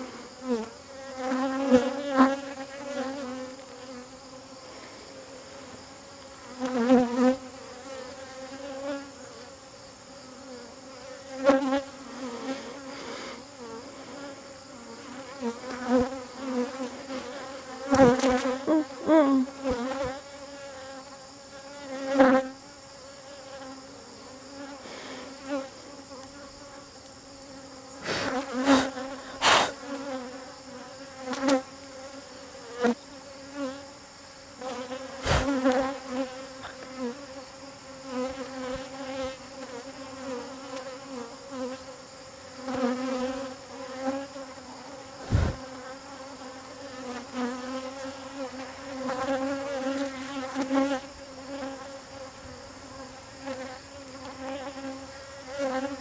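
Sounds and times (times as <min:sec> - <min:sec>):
honeybees buzzing: 0:00.0 - 0:56.0.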